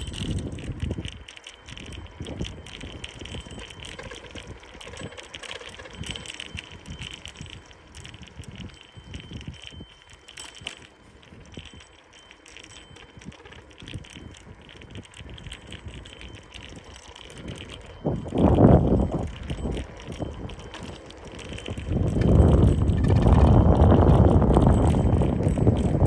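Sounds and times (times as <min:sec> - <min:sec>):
wind buffeting microphone: 0:00.0 - 0:12.0, 0:12.6 - 0:26.0
bicycle rattling on rough pavement: 0:00.0 - 0:26.0.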